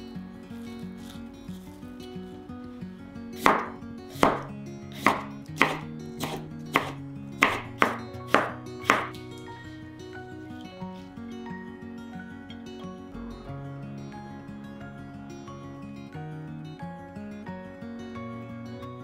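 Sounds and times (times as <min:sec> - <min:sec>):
knife slicing cucumber on board: 0:03.4 - 0:09.2.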